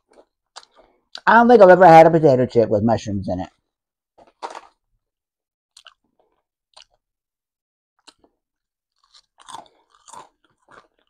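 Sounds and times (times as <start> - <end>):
person crunching a chip: 0.0 - 1.2, 4.2 - 4.9, 5.7 - 7.0, 8.0 - 11.0.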